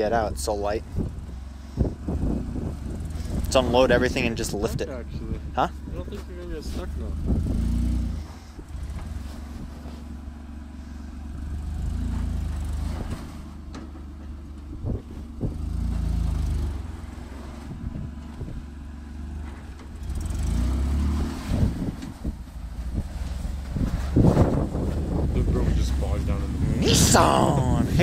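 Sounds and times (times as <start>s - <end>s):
truck engine revving: 6.6s - 13.6s, 15.0s - 28.0s.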